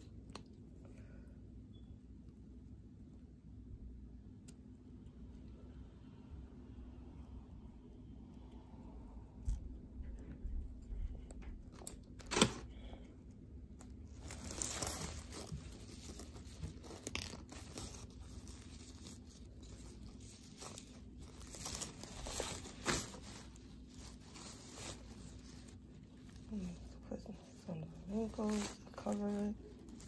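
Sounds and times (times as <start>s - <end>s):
tulle netting rustling: 13.9s - 30.0s.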